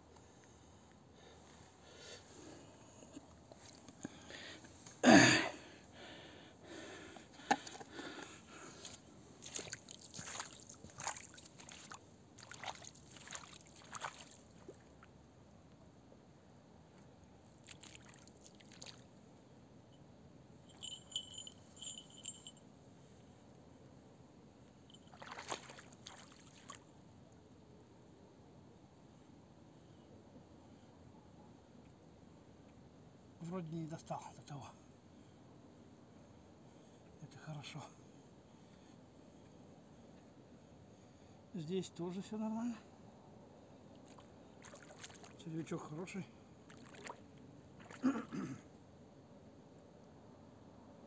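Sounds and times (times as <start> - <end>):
footsteps through grass: 9.4 - 14.3.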